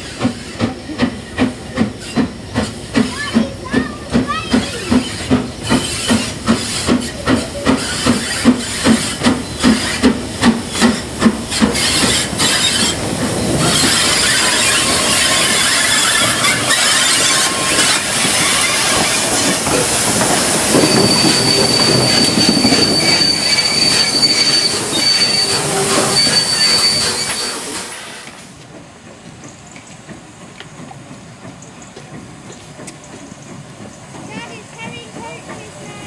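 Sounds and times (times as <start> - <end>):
clanking of locomotive motion: 0.0 - 36.0
steam locomotive running slowly: 0.0 - 36.0
high-pitched wheel squeal: 11.6 - 19.6, 20.4 - 28.0.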